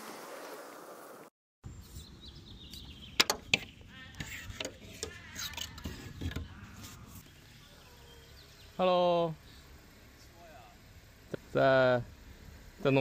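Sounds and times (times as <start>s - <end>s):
metal tool scraping: 4.2s - 7.2s.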